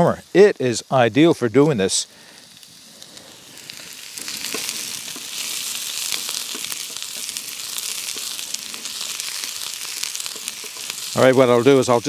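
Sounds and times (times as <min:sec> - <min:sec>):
vegetables sizzling in a pan: 0:00.0 - 0:12.0
spatula scraping a pan: 0:03.6 - 0:11.2.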